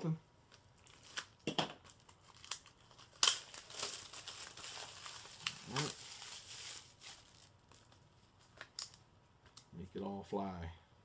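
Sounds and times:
plastic wrap crinkling: 0:00.5 - 0:09.6
plastic wrap tearing: 0:00.8 - 0:09.0.

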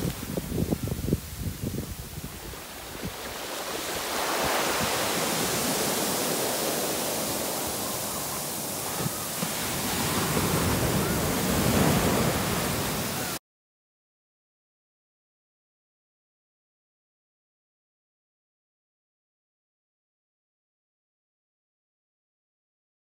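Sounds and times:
ocean surf breaking on beach: 0:00.0 - 0:13.4.

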